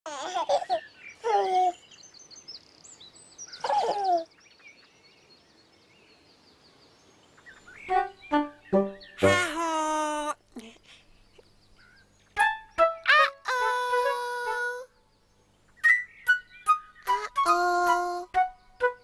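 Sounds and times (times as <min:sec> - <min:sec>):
baby giggling and cooing: 0:00.1 - 0:01.8, 0:03.6 - 0:04.3, 0:09.2 - 0:11.0, 0:13.0 - 0:14.9, 0:17.0 - 0:18.4
faint birdsong chirping: 0:00.1 - 0:19.0.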